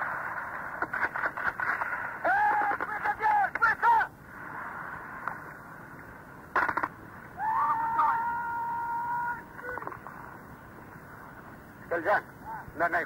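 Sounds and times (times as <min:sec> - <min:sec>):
radio static hiss: 0:00.0 - 0:07.9, 0:08.7 - 0:13.0
garbled radio voice: 0:02.5 - 0:04.1.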